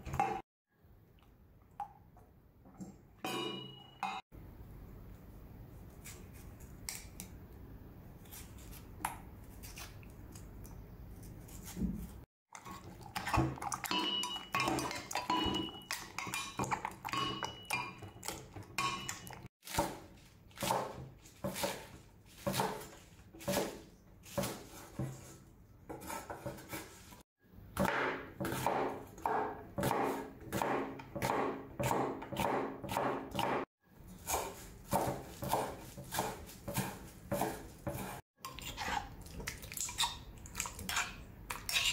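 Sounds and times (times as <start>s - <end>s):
knife slicing tomato: 8.2s - 12.2s, 19.6s - 27.2s, 27.8s - 39.2s
cleaver chopping on wooden board: 27.8s - 33.7s, 34.3s - 38.2s.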